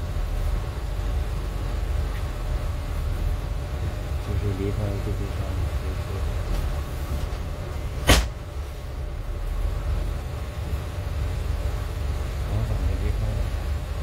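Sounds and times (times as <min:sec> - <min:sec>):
engine and road rumble: 0:00.0 - 0:14.0
sharp knock: 0:08.0 - 0:08.3.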